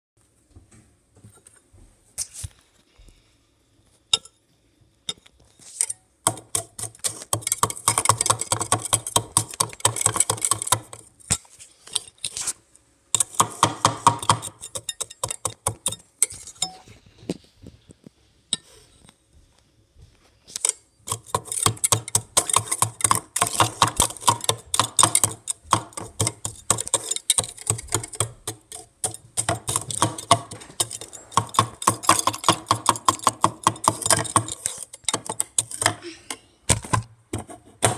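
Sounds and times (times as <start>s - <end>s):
popcorn and ice rattling in cup: 6.3s - 11.0s, 21.1s - 36.0s.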